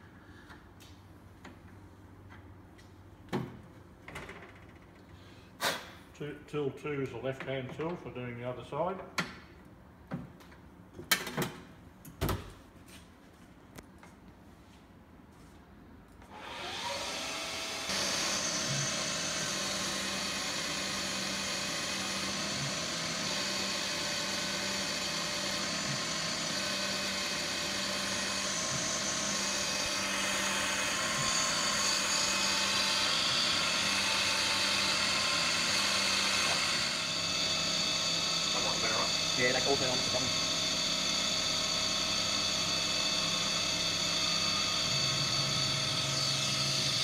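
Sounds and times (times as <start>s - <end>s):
lathe spindle motor whining: 16.3s - 47.0s
tool cutting metal: 16.3s - 47.0s.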